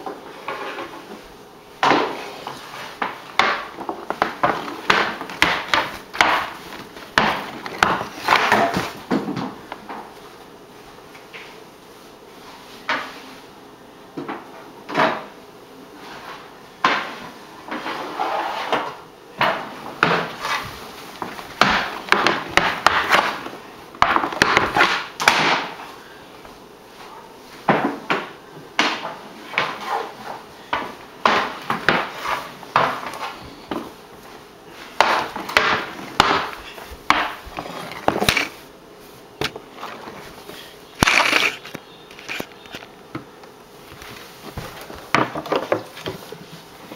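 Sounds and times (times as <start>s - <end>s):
hockey stick knocking on wooden floor: 1.8s - 2.2s, 3.0s - 10.1s, 19.4s - 25.8s, 27.7s - 30.1s, 30.7s - 33.9s, 35.0s - 38.5s, 44.5s - 46.2s.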